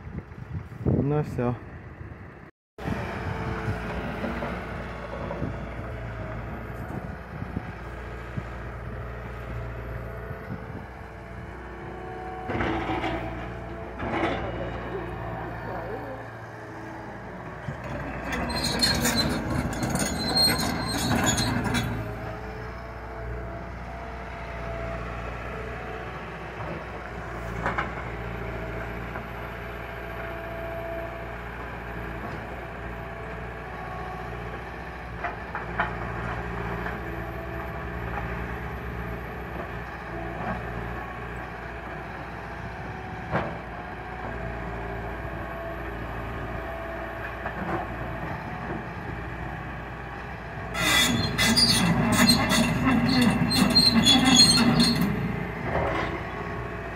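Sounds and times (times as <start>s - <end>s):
excavator diesel engine running: 0.0s - 56.9s
grinding squealing clatter: 12.4s - 22.8s, 50.7s - 56.6s.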